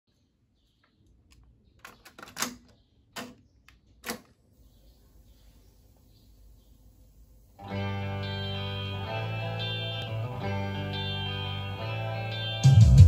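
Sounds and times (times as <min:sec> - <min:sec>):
play key clunk: 0:01.8 - 0:03.4, 0:04.0 - 0:04.3
faint tape hiss: 0:04.5 - 0:12.6.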